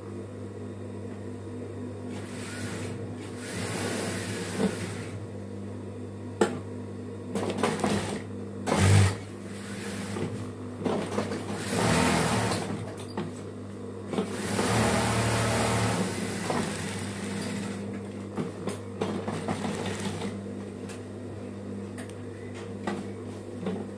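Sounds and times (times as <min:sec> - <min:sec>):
sewing machine stitching: 0:07.7 - 0:10.2, 0:11.3 - 0:12.8, 0:14.2 - 0:17.8, 0:19.0 - 0:20.4
motor hum: 0:13.8 - 0:21.8.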